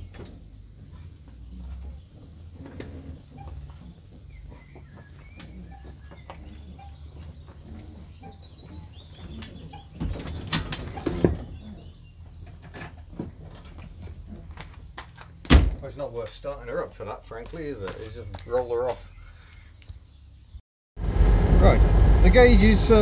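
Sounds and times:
small birds chirping: 0:00.0 - 0:20.6
loud knocks and clunks: 0:15.0 - 0:15.8
low rumble: 0:21.0 - 0:23.0.

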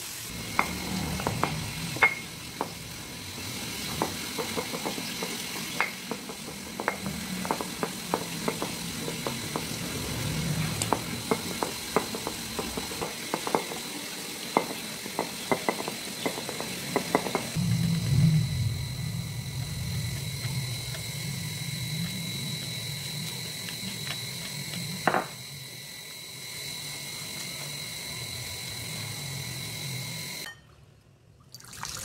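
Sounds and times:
stone pestle knocking in mortar: 0:14.6 - 0:17.6.

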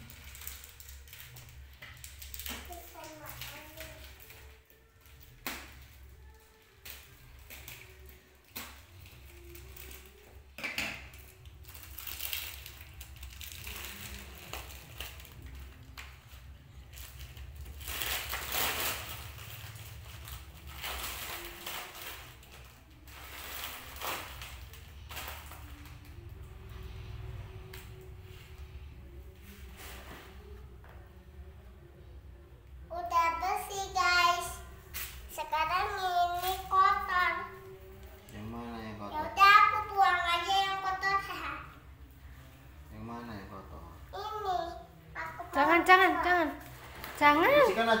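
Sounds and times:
hands crunching plastic wrap: 0:11.1 - 0:16.1, 0:16.9 - 0:26.0.

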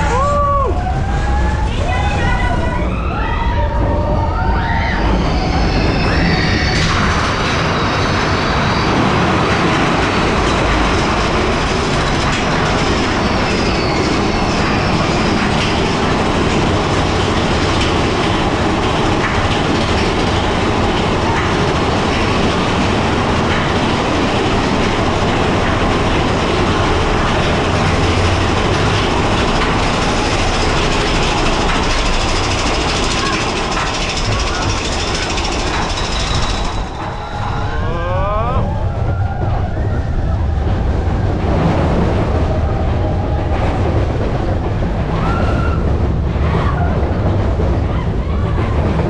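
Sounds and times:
roller coaster train rumbling: 0:00.0 - 0:49.0.

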